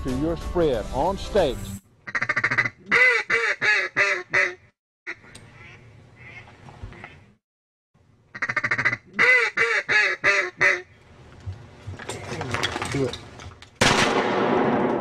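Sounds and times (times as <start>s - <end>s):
duck quacking: 2.0s - 7.3s, 8.3s - 10.9s.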